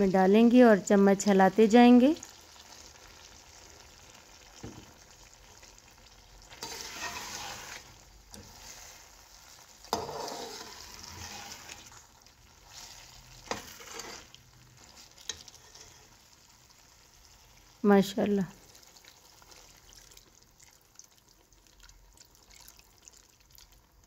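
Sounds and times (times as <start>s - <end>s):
low sizzle: 0.0s - 24.0s
spoon stirring and scraping pot: 6.5s - 16.4s.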